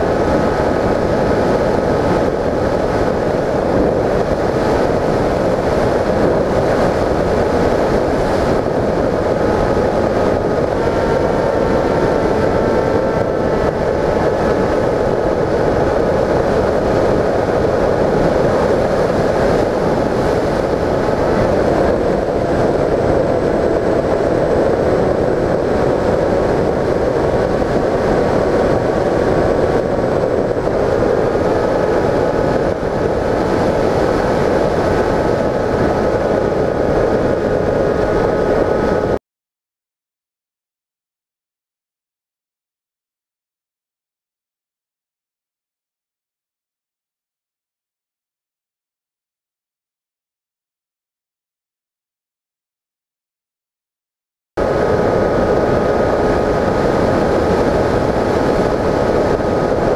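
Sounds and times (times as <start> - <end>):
electric motor and propeller whining: 0.0 - 39.2
wind rushing over airframe: 0.0 - 39.2, 54.6 - 59.9.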